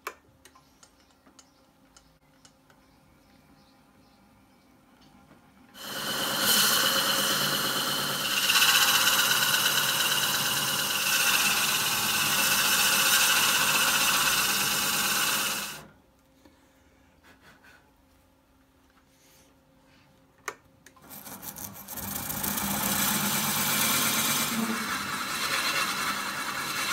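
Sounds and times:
drill boring into wood: 5.8 - 15.9, 21.1 - 26.9.

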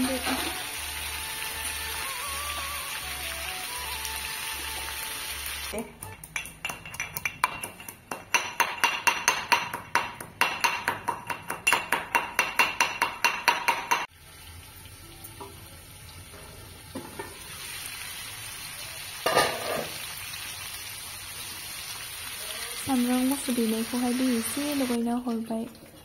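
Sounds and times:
food sizzling in a wok: 0.0 - 5.8, 14.1 - 25.0
metal pounding in steel cup: 6.2 - 14.0
lid clattering: 19.3 - 20.0.

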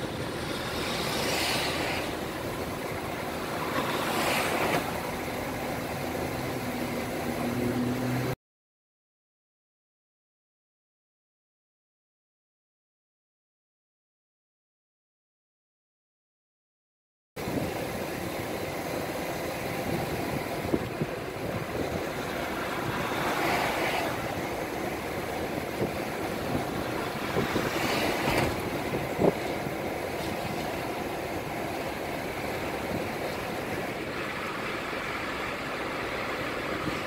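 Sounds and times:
road and tyre noise: 0.0 - 8.4, 17.4 - 37.0.

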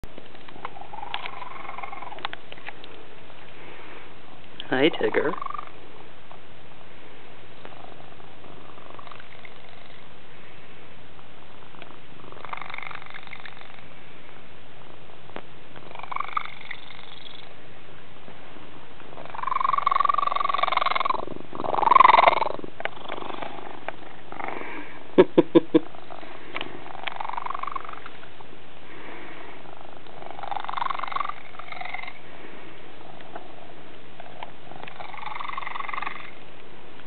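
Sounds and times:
cat purring and calling: 0.6 - 2.4, 4.8 - 5.8, 7.7 - 10.1, 11.7 - 13.9, 15.8 - 17.5, 19.1 - 24.8, 25.8 - 28.1, 29.6 - 32.2, 33.0 - 36.4.

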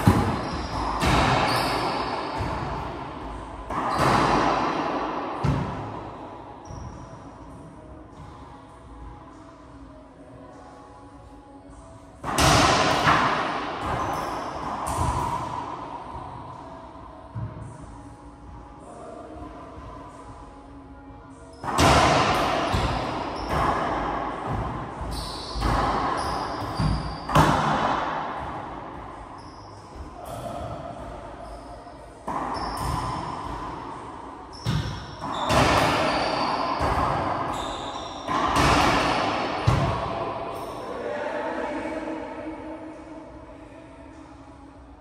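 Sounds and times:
ball hits echoing in court: 0.0 - 3.0, 3.7 - 5.9, 12.2 - 15.7, 21.6 - 29.0, 32.2 - 33.8, 34.5 - 37.6, 38.2 - 40.2.

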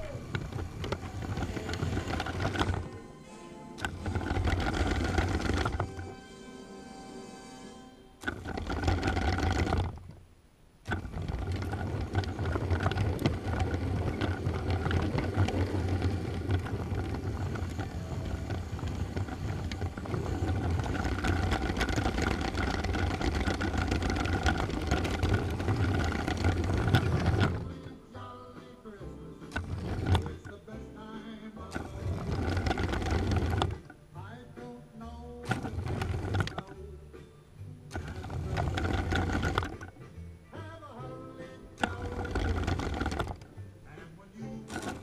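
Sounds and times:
toy train motor whirring: 0.0 - 3.0, 3.8 - 6.2, 7.0 - 10.0, 10.9 - 27.9, 29.5 - 30.6, 31.7 - 33.9, 35.5 - 36.7, 37.9 - 40.0, 41.8 - 43.4, 44.7 - 45.0
wheels rumbling on plastic track: 0.0 - 3.2, 3.8 - 6.2, 8.2 - 10.2, 10.8 - 37.1, 37.9 - 40.0, 40.6 - 45.0.

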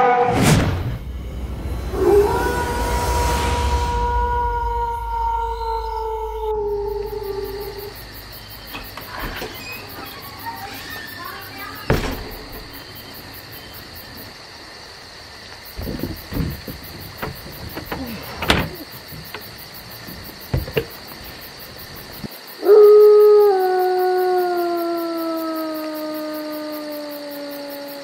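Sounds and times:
high insect drone: 0.8 - 28.0
wolf howling: 1.8 - 8.0, 22.6 - 28.0
plastic trash bin rattling: 15.8 - 21.1.

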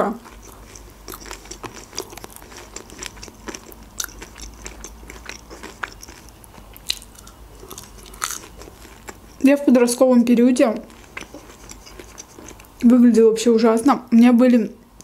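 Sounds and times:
soft chewing and mouth clicks: 0.1 - 9.5, 10.6 - 12.9.

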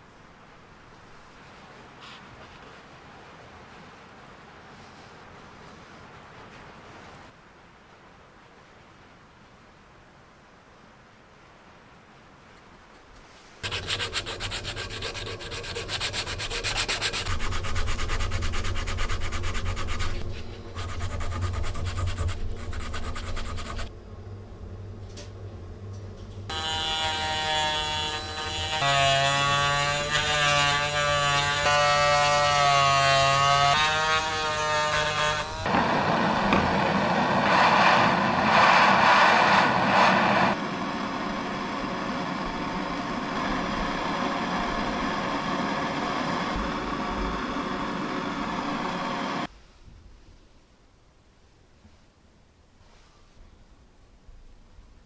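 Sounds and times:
gas torch flame hissing: 35.6 - 49.5
gas torch whistling: 35.6 - 49.5.

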